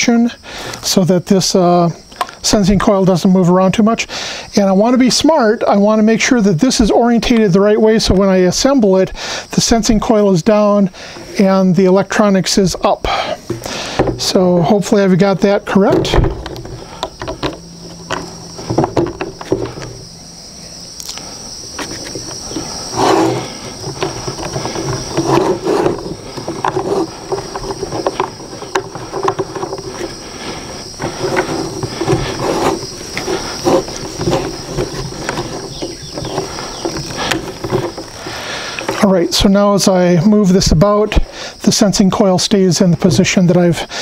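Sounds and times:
high drone of insects: 0.0s - 44.0s.

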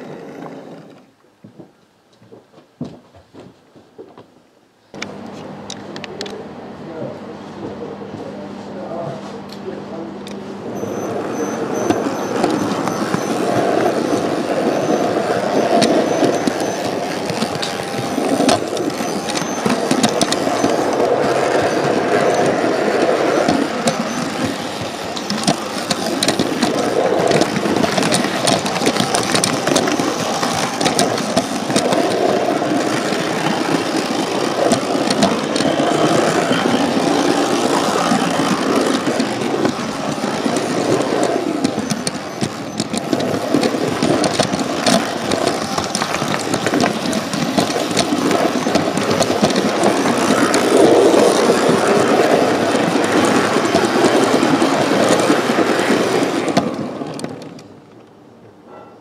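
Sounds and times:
wheels clicking over rail joints: 0.0s - 4.3s, 8.9s - 59.0s
model train motor whir: 9.9s - 57.8s.

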